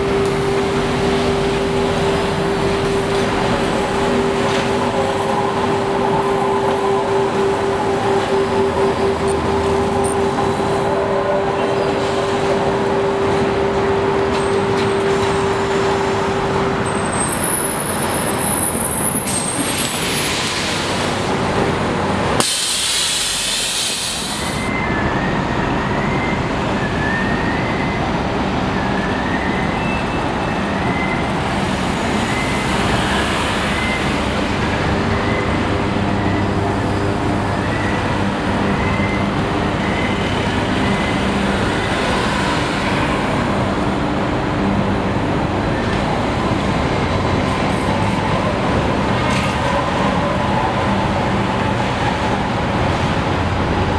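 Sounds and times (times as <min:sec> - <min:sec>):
street traffic: 0:00.0 - 0:53.9
trolleybus whine: 0:00.0 - 0:53.9
air brakes hissing: 0:22.4 - 0:24.7.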